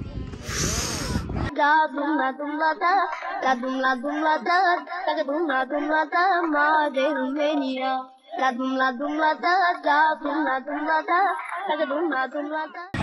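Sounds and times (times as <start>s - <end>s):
high voice singing: 0.4s - 7.8s.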